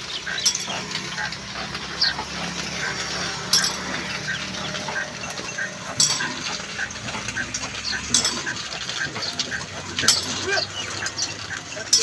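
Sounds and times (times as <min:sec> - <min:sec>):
sharp metal clank: 0:00.3 - 0:01.0, 0:03.5 - 0:06.6, 0:08.1 - 0:08.6.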